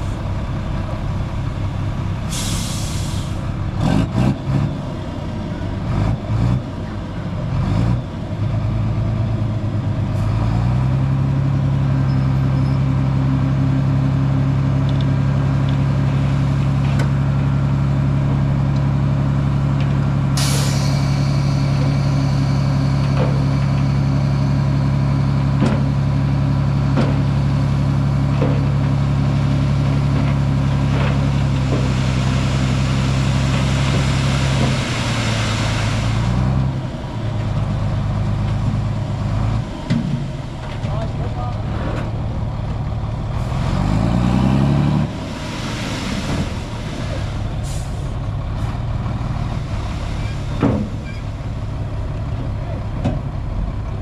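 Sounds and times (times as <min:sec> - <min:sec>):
truck diesel engine: 0:00.0 - 0:54.0
air release hiss: 0:02.3 - 0:03.4, 0:20.4 - 0:21.1.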